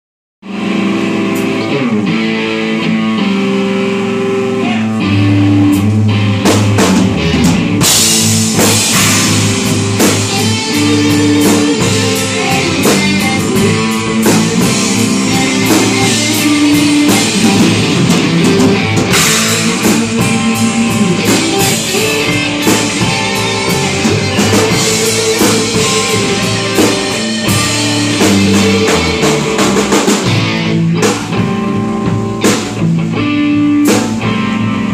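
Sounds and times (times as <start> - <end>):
live rock band playing: 0.4 - 34.9
drum hits: 6.5 - 33.0.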